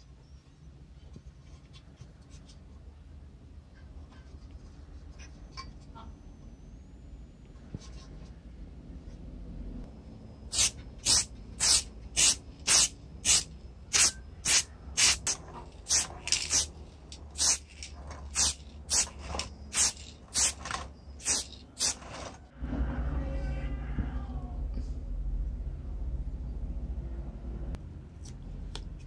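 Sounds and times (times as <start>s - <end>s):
spray paint hissing from aerosol can: 10.5s - 16.7s, 17.3s - 22.4s.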